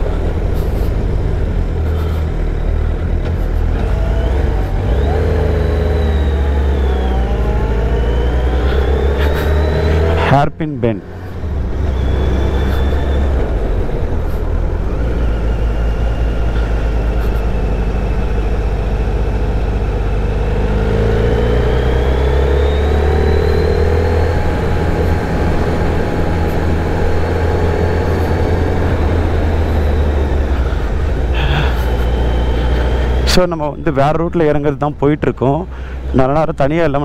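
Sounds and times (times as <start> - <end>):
motorcycle engine running: 11.1 - 33.5.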